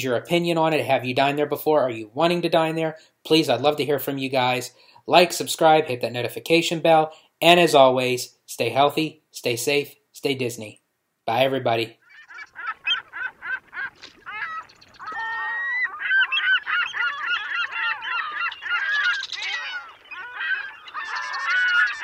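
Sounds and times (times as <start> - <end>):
flock of birds honking: 12.0 - 22.0.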